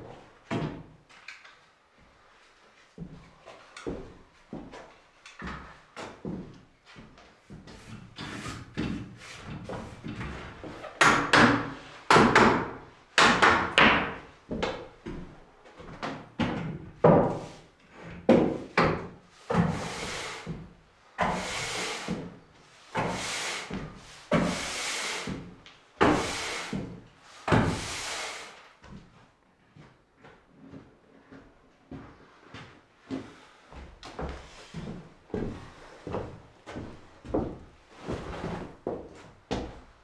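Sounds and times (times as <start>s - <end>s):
push broom sweeping floorboards: 7.0s - 12.3s, 17.0s - 28.9s.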